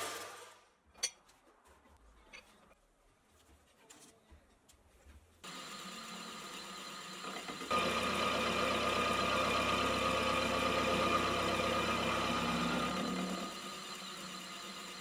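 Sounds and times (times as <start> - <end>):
end mill cutting metal: 5.5 - 15.0
milling machine spindle running: 5.5 - 15.0.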